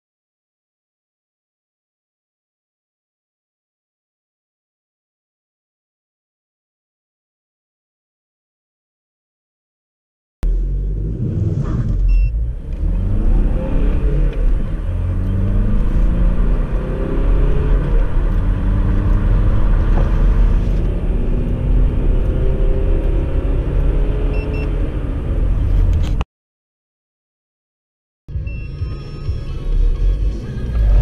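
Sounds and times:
car engine accelerating: 10.4 - 26.2, 28.4 - 31.0.

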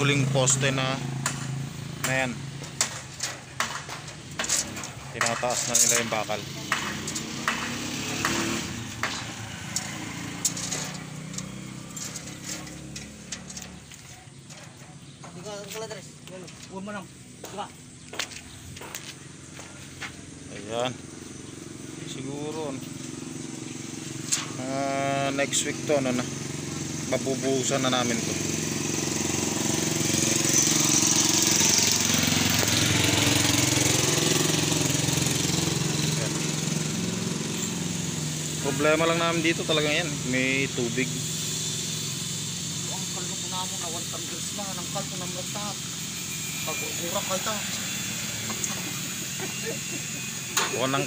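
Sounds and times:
small engine running: 0.0 - 51.0
metal bars clicking: 1.2 - 16.9
high hiss: 23.1 - 51.0.

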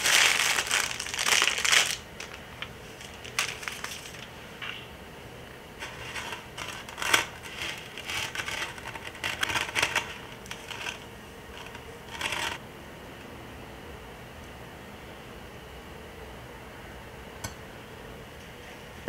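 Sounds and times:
sugar scraping against dough: 5.8 - 12.6.

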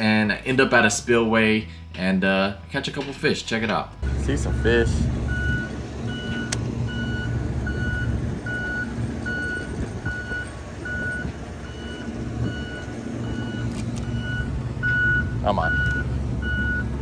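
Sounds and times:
low continuous rumble: 3.9 - 17.0
reversing alarm beeping: 4.0 - 17.0.

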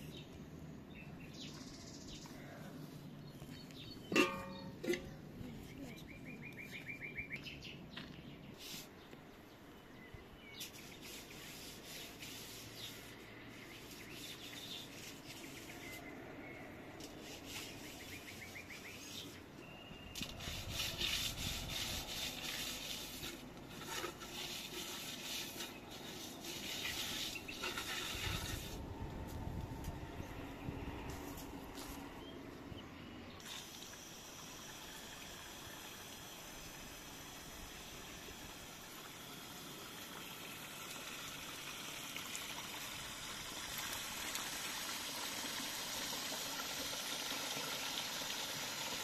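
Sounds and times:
birds singing with trills: 5.6 - 8.7, 17.5 - 20.5
rustling and scraping: 20.2 - 30.0, 31.0 - 32.1.

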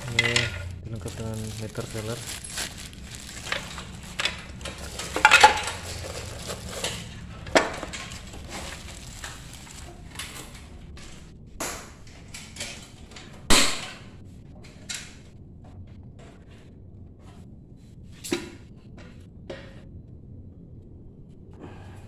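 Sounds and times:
metal parts knocking and clattering: 0.0 - 9.4
plastic wrapping crinkling: 0.0 - 10.7.

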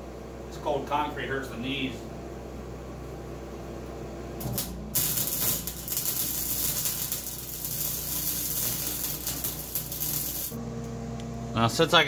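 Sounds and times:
arc welding crackling hiss: 4.4 - 10.6
welding arc strike: 4.4 - 10.6.

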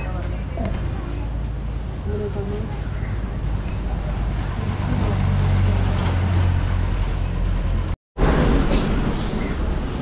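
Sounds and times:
people chatting: 2.0 - 2.9.

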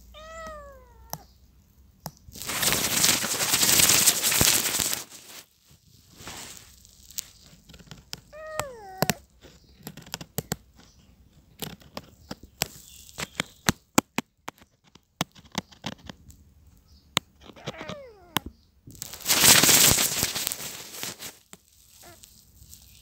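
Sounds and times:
kitten meowing: 0.0 - 1.3, 8.3 - 9.3, 17.5 - 18.5, 22.0 - 22.3
sharp clicks and crackles: 2.0 - 5.5, 6.1 - 23.0.

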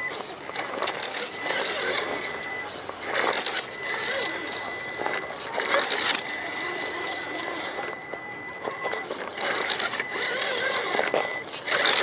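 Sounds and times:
electric motor whine: 0.0 - 12.0
gear chatter: 0.0 - 12.0.

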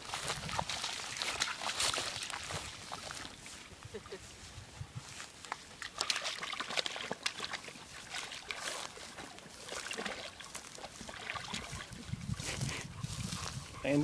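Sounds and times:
dog splashing in water: 0.0 - 3.3, 5.5 - 12.3
water trickling: 5.8 - 12.5.

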